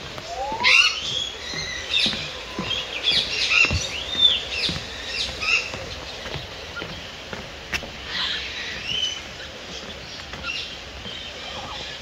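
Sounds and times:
birds chirping and whistling: 0.0 - 7.0
rising whistled bird call: 0.2 - 1.8.

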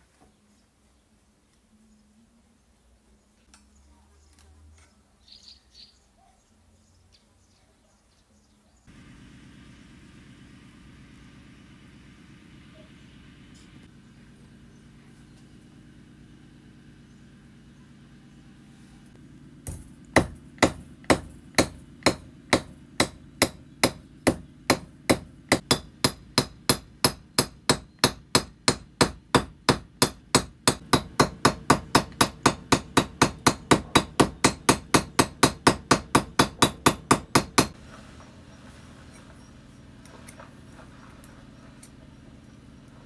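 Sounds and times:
hammer blows ringing: 19.7 - 37.8.

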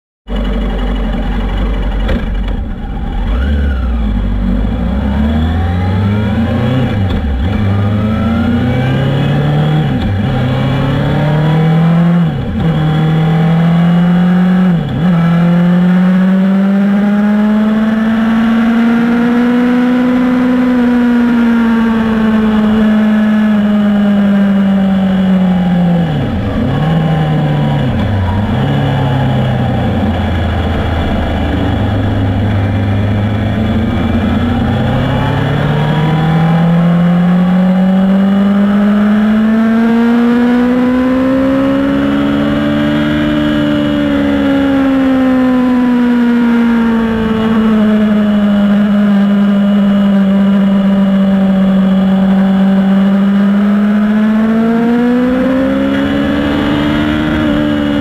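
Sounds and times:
motorcycle engine accelerating: 0.2 - 58.0.

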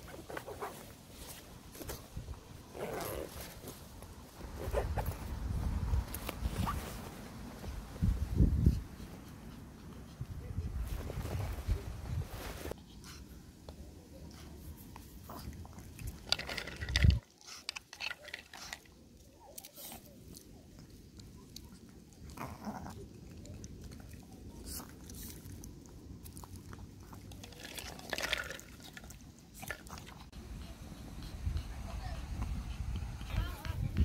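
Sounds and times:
dog crunching a treat: 15.3 - 18.9.

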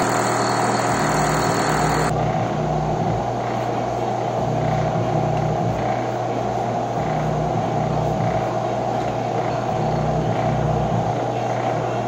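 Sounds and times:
milling machine humming: 0.0 - 2.1.

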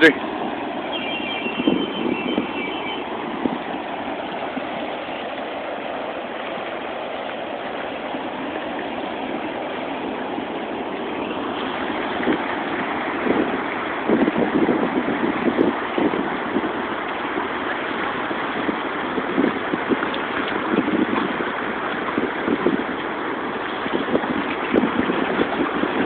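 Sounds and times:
ocean surf: 0.0 - 26.0
wind buffeting microphone: 1.5 - 26.0.

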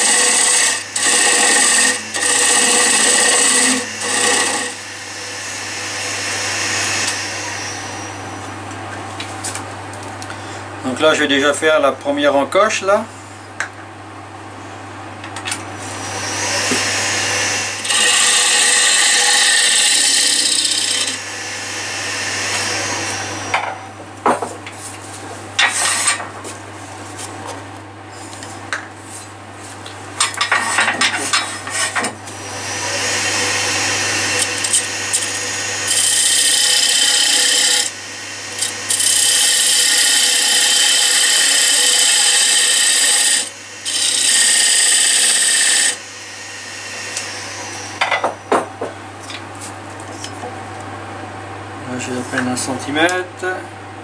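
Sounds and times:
tool scraping wood: 0.0 - 4.8, 15.6 - 21.2, 25.6 - 26.6, 30.3 - 37.9, 38.6 - 46.0
lathe motor humming: 0.0 - 9.2, 15.5 - 24.2, 31.7 - 48.9
tool cutting spinning wood: 0.0 - 9.2, 15.5 - 24.6, 30.3 - 49.0.

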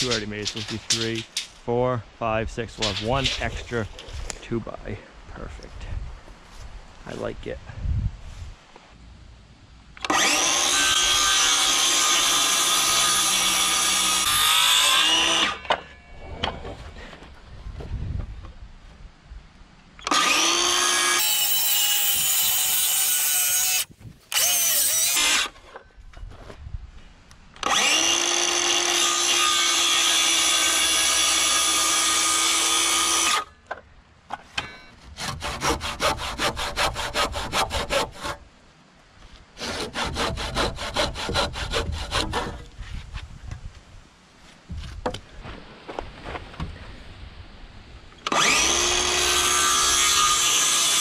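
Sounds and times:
circular saw cutting wood: 10.0 - 15.8, 20.0 - 25.6, 27.6 - 33.5, 35.2 - 38.4, 39.6 - 42.6, 48.3 - 51.0
handsaw strokes: 20.1 - 25.6, 35.1 - 38.4, 39.6 - 42.6.

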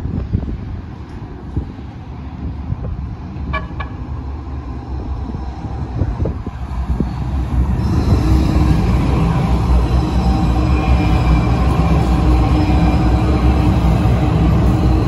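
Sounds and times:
train rumble: 0.0 - 15.0
train horn toots: 3.5 - 4.0.

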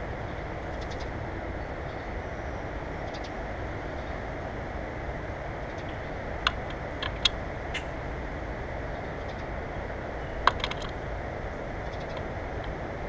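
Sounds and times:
low background noise: 0.0 - 13.0
bird clicks and taps: 10.5 - 10.9.

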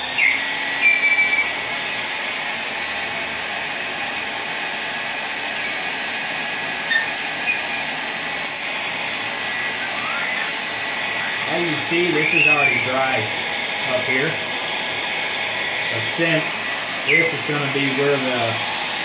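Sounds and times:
hair dryer blowing: 0.0 - 19.0.

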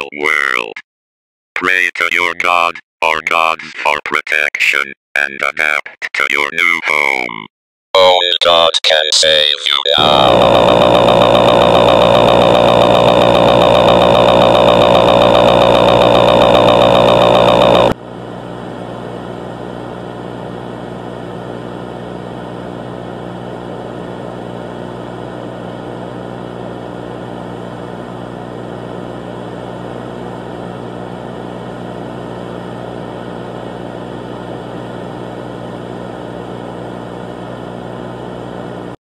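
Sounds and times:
loud buzzing drone: 10.0 - 18.0
low hum: 10.0 - 23.9.

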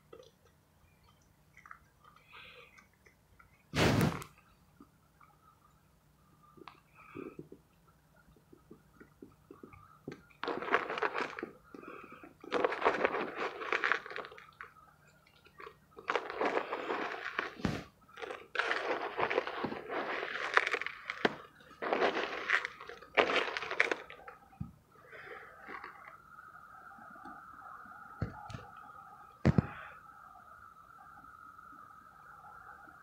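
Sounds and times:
mothballs crunching in plastic bowl: 9.0 - 14.7, 15.5 - 24.4.

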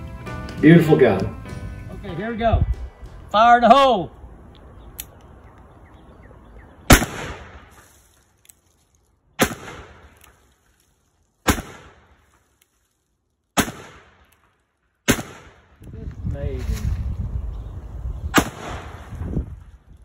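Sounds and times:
revolver shots with echo: 6.9 - 7.7, 18.3 - 19.1.

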